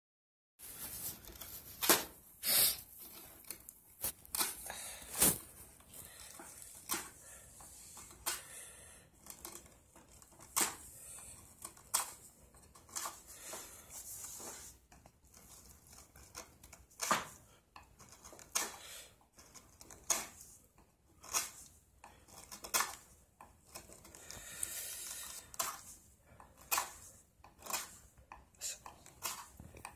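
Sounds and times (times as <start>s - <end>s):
chisel scraping wooden stick: 9.1s - 29.9s.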